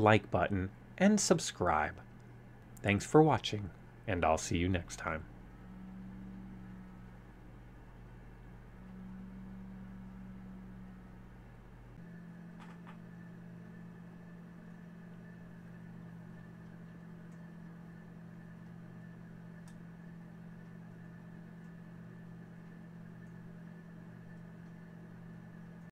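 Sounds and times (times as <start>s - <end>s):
small electric motor humming: 5.3s - 13.0s
faint clicks: 19.6s - 19.9s.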